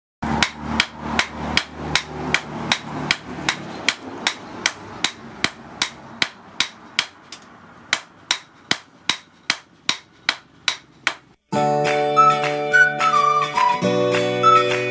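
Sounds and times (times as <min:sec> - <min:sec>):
hammers striking hot steel on anvil: 0:00.2 - 0:11.4.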